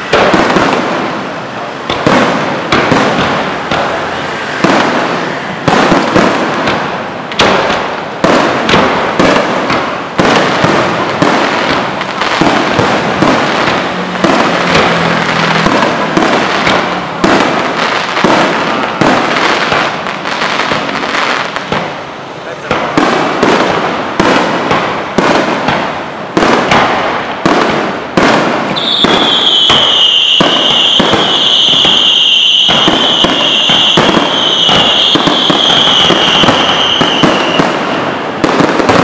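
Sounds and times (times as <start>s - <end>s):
fireworks bangs: 0.0s - 39.0s
fireworks crackling: 0.0s - 39.0s.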